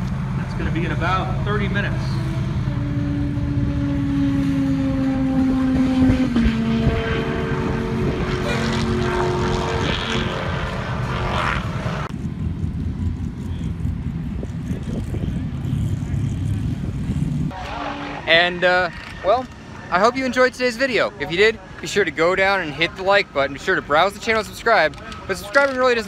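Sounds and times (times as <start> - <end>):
distant race car engine drone: 0.0 - 26.0
wind rumble on microphone: 4.7 - 17.6.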